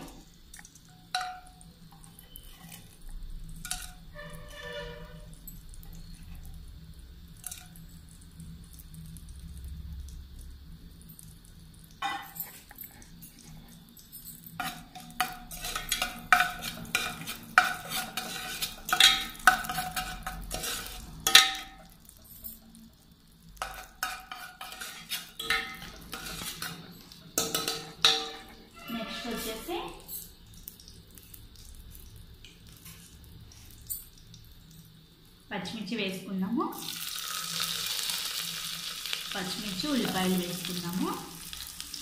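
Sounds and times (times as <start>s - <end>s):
spices sizzling in oil: 0.0s - 42.0s
metal spoon scraping a pot: 1.1s - 3.0s, 3.6s - 6.3s, 14.5s - 22.0s, 23.6s - 30.1s.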